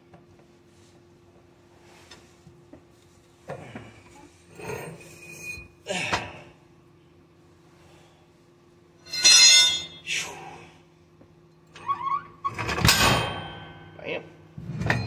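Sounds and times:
metal clanking and scraping: 0:09.1 - 0:10.0, 0:14.6 - 0:15.0.

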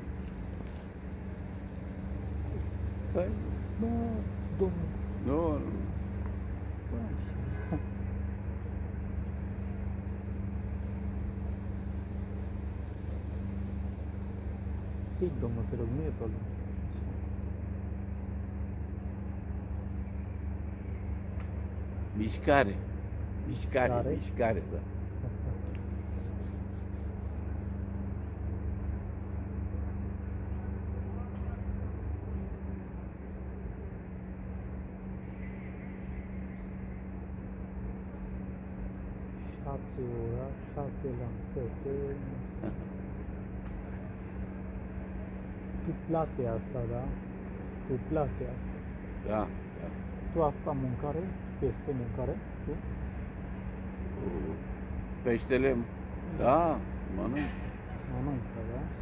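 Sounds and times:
constant low hum: 0:00.0 - 0:59.0
low outdoor rumble: 0:00.0 - 0:59.0.

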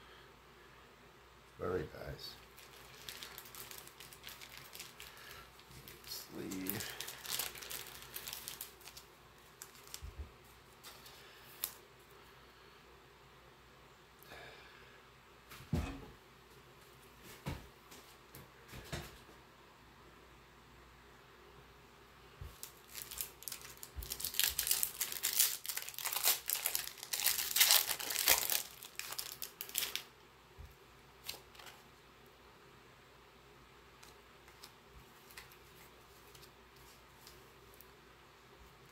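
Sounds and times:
plastic sleeve rustling: 0:02.3 - 0:11.8, 0:22.4 - 0:30.1, 0:31.2 - 0:31.9, 0:34.0 - 0:37.9
foil wrapper crinkling and tearing: 0:02.4 - 0:10.1, 0:10.8 - 0:11.8, 0:22.5 - 0:30.1, 0:31.2 - 0:31.8, 0:34.0 - 0:37.5.

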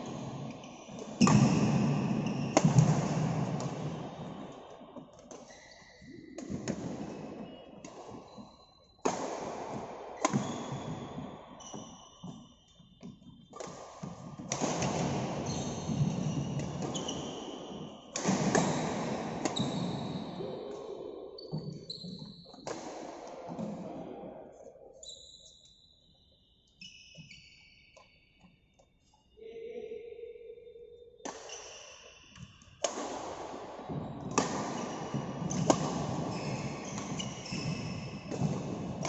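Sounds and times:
rackets striking shuttlecock: 0:00.0 - 0:04.3, 0:06.4 - 0:12.4, 0:31.2 - 0:39.0
shoes squeaking on floor: 0:00.0 - 0:09.0, 0:10.2 - 0:18.8, 0:19.4 - 0:20.4, 0:21.3 - 0:22.7, 0:25.0 - 0:29.6, 0:33.9 - 0:39.0.

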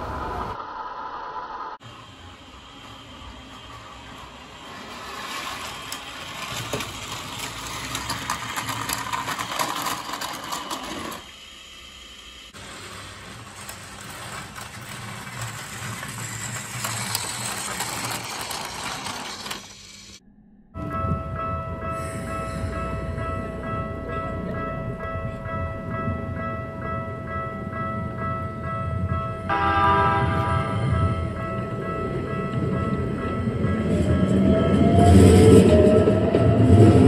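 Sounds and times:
toy train motor whirring: 0:02.5 - 0:20.2
wheels clicking over track joints: 0:03.7 - 0:11.3, 0:12.6 - 0:20.2.

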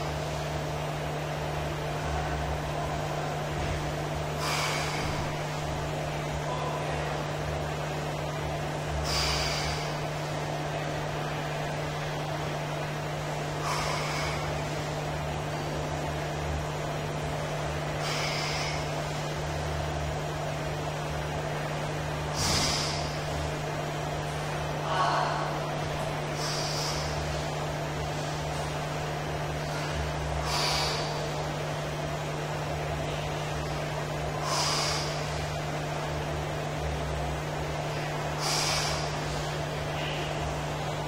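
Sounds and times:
steady low hum: 0:00.0 - 0:41.0
man's forceful breaths: 0:04.3 - 0:05.8, 0:08.9 - 0:10.4, 0:13.3 - 0:16.0, 0:17.2 - 0:19.6, 0:22.3 - 0:23.7, 0:26.2 - 0:31.6, 0:34.3 - 0:36.0, 0:37.8 - 0:39.8.

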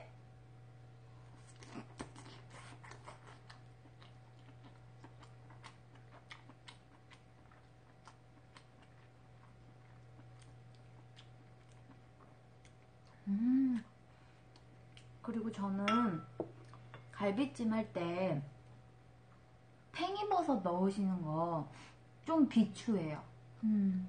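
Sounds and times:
steady low hum: 0:00.0 - 0:24.0
wet chewing mouth clicks: 0:01.5 - 0:13.2
person humming: 0:13.2 - 0:13.9, 0:23.6 - 0:24.0.

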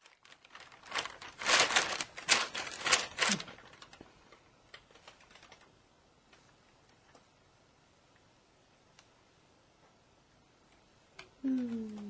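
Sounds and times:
plastic bag crinkling: 0:00.0 - 0:05.7.

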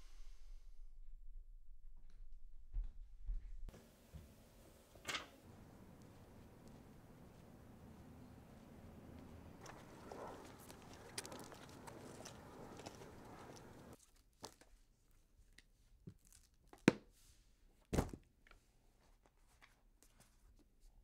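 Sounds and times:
outdoor background noise: 0:02.7 - 0:14.0.

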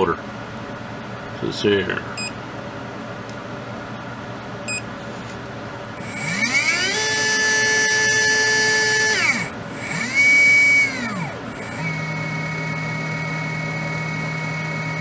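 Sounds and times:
electric motor whine: 0:05.9 - 0:15.0.

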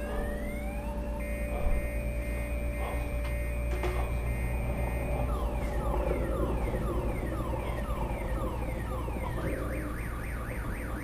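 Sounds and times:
electronic alarm siren: 0:00.0 - 0:11.0.

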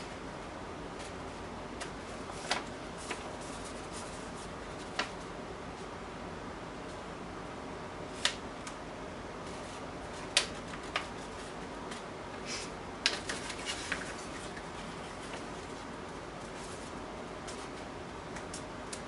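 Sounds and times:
room hum: 0:00.0 - 0:19.0.

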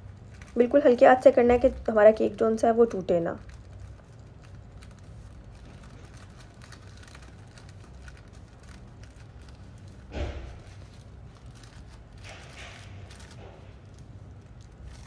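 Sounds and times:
low steady hum: 0:00.0 - 0:15.0
paper and gloves rustling: 0:00.0 - 0:15.0.

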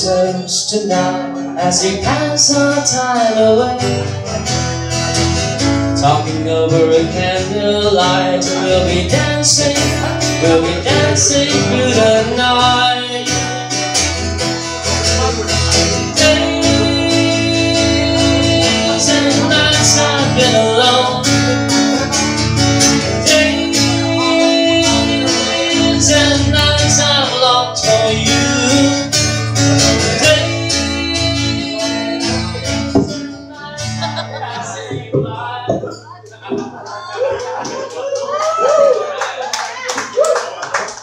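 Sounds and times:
person singing wordlessly: 0:00.0 - 0:04.1, 0:05.9 - 0:13.9, 0:15.8 - 0:22.1, 0:22.9 - 0:36.2
acoustic guitar strumming: 0:00.0 - 0:38.0.

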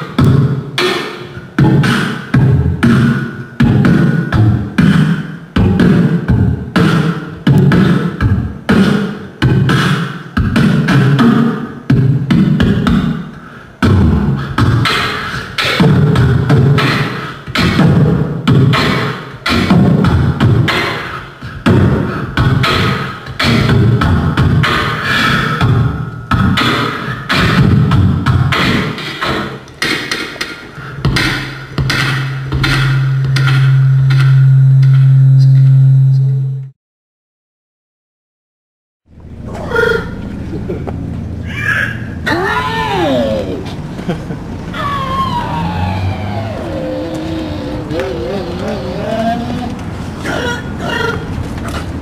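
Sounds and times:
person beatboxing into microphone: 0:00.0 - 0:34.3, 0:46.4 - 0:50.6.

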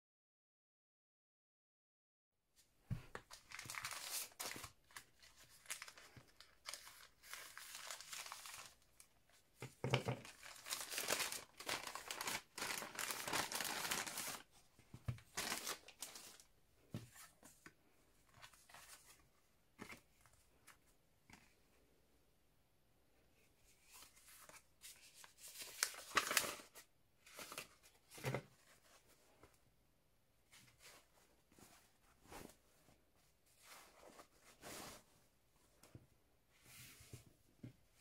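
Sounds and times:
paper cards rustling: 0:03.0 - 0:08.8, 0:10.1 - 0:14.5, 0:15.2 - 0:17.5, 0:23.8 - 0:29.0
plastic bag tearing and crinkling: 0:03.4 - 0:08.9, 0:10.2 - 0:14.5, 0:15.3 - 0:16.4.

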